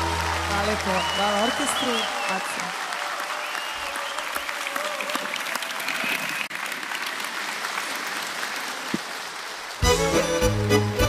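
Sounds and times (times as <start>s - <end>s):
audience applauding: 0.0s - 11.0s
folk band with accordion: 9.8s - 11.0s.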